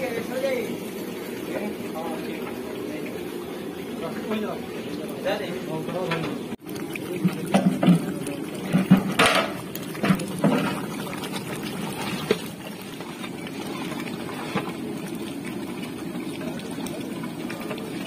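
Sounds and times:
pot boiling with bubbling rumble: 0.0 - 18.0
ladle knocking against pot: 7.2 - 10.8.

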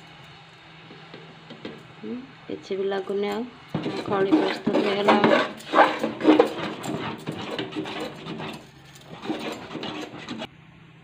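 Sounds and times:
spoon scraping metal pot: 3.7 - 10.5.

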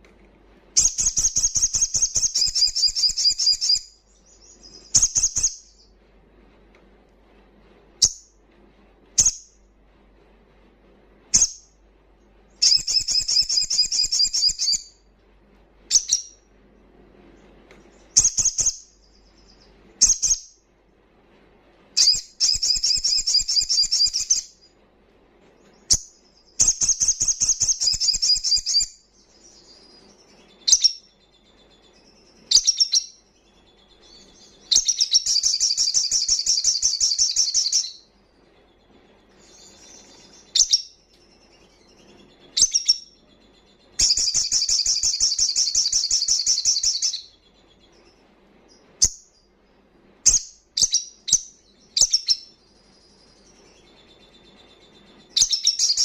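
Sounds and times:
sunbird trilling: 0.8 - 5.8.

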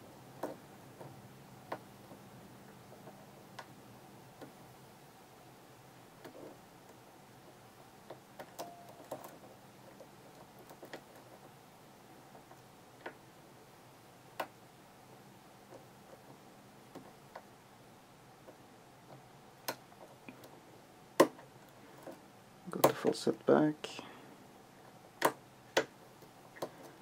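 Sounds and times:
lock pick clicking pins: 8.4 - 9.4.

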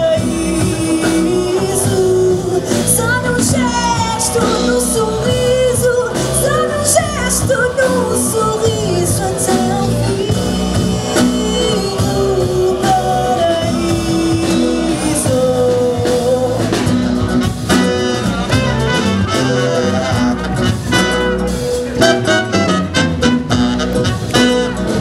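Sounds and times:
woman singing: 0.0 - 17.2
drum kit: 0.0 - 25.0
electric bass: 0.0 - 25.0
trumpet: 16.6 - 25.0.

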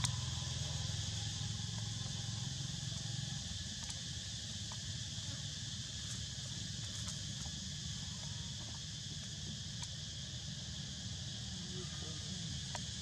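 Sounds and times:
high-pitched insect chorus: 0.0 - 13.0
faint ticks: 3.0 - 4.9, 12.6 - 13.0.

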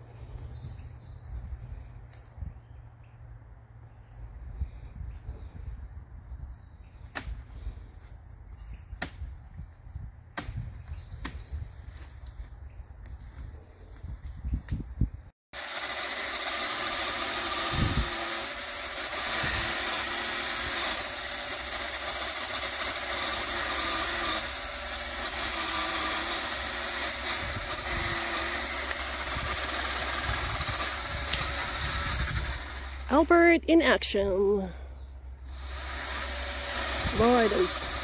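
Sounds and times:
powered cutting tool running: 15.6 - 33.4, 35.4 - 38.0.

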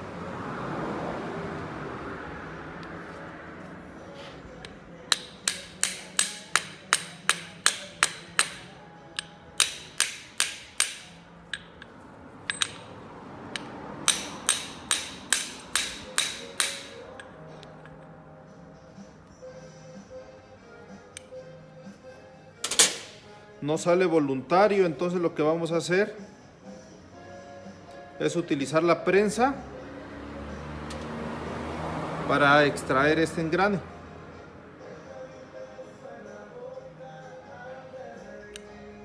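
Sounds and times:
metal-on-metal knocks: 12.5 - 13.0.

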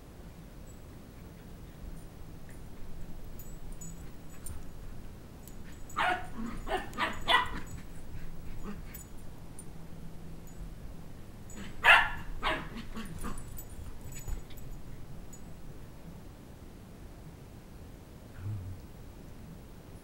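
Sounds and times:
puppy barking: 5.6 - 7.9, 11.6 - 13.6.

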